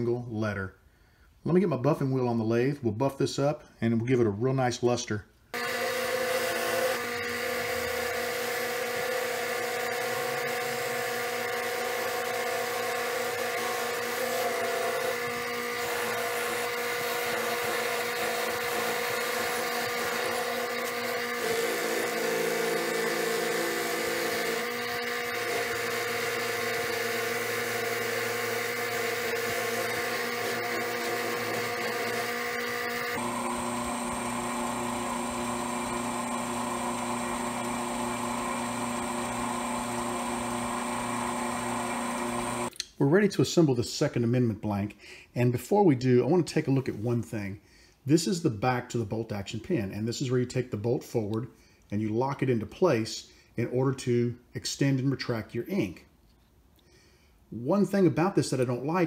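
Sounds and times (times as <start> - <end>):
lathe motor whine: 5.6 - 42.7.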